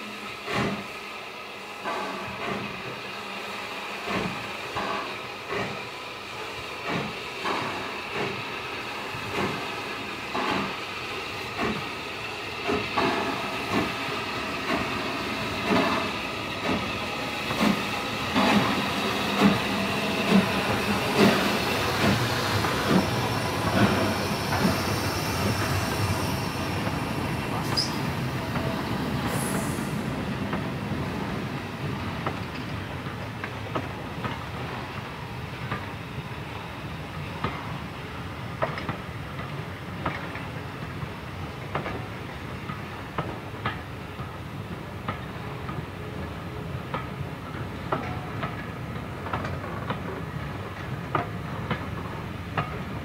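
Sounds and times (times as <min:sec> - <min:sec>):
steam locomotive exhaust chuffs: 0:00.0 - 0:31.9
steam hissing: 0:00.0 - 0:32.9
high wheel squeal: 0:27.6 - 0:28.1.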